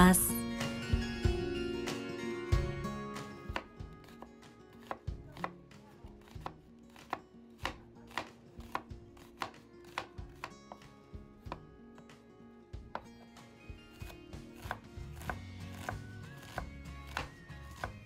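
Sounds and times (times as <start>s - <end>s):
knife slicing onion on wooden board: 3.4s - 12.2s, 12.9s - 18.0s.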